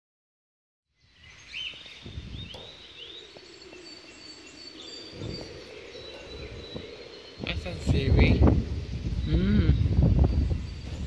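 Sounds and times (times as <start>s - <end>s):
small birds chirping: 0.9s - 11.0s
low drone: 2.0s - 11.0s.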